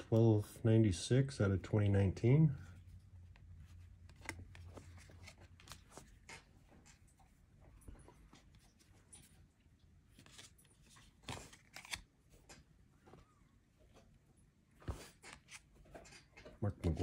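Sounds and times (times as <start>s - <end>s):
cards rustling and flicking: 2.8s - 7.4s, 8.1s - 13.3s, 14.8s - 17.0s.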